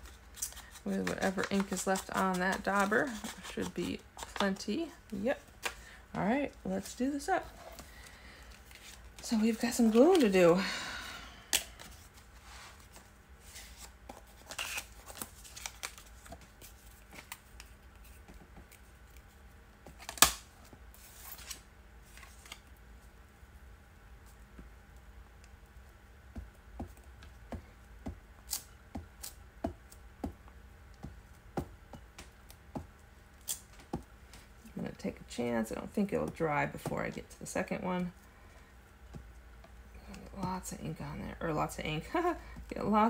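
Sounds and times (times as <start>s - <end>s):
paper rustling and tapping: 0.4s - 4.6s.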